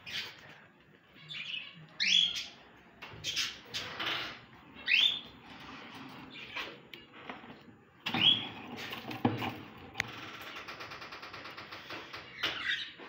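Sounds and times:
birds chirping: 0.0 - 9.0.

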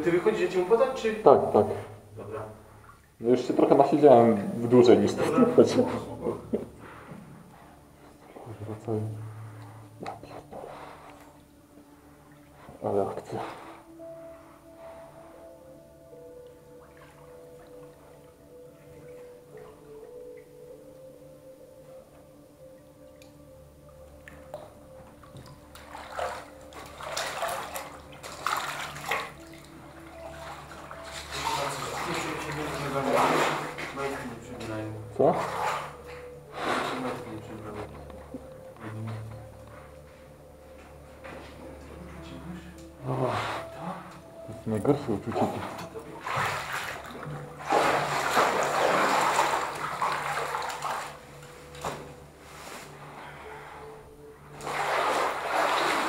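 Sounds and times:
water splashing and sloshing: 0.0 - 20.8, 22.3 - 56.0
wading through water splashing: 24.2 - 38.1, 45.2 - 52.2, 54.5 - 56.0.

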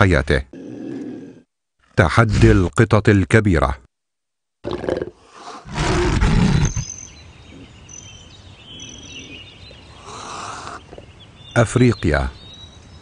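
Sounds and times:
big cats snarling: 0.5 - 1.5, 4.6 - 6.8, 8.8 - 11.1.

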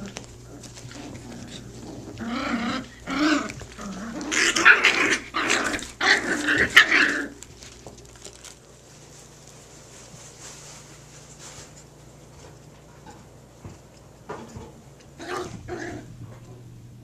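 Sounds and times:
puppies growling: 0.0 - 8.6, 15.0 - 16.6.

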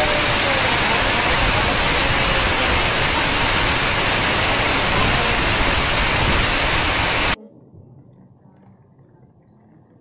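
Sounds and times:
heavy rain pouring: 0.0 - 7.4.

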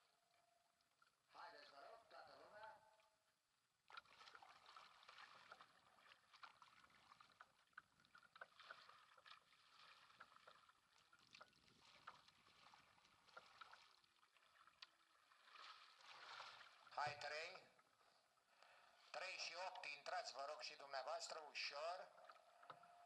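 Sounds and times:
paddle blades splashing: 3.8 - 18.0.

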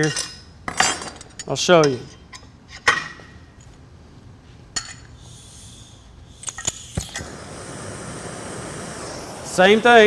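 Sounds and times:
gas torch hiss: 5.2 - 10.0
torch igniter clicks: 6.4 - 10.0.

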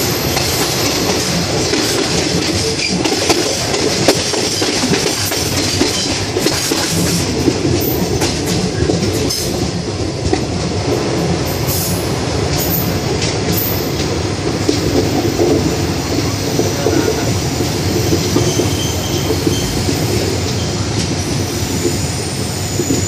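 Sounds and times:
train wheels rumbling on rails: 0.0 - 23.0
high wheel squeal: 16.2 - 23.0.

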